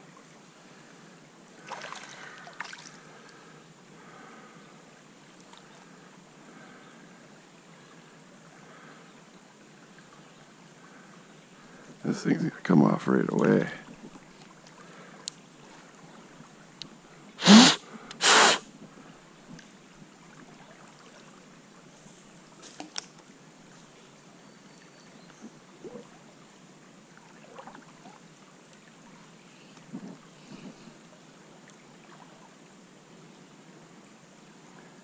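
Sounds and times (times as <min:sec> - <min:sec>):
stream flowing: 0:00.0 - 0:35.0
sharp blasts of breath: 0:17.4 - 0:18.6.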